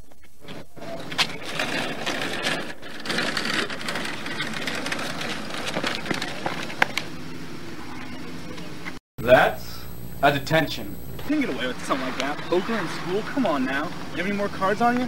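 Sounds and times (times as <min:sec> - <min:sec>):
wheelchair rattling on asphalt: 0:00.9 - 0:07.1.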